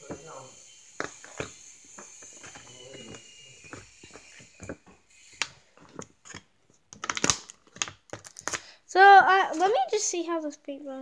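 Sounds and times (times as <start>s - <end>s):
plastic palette clicks and crinkles: 5.8s - 8.7s.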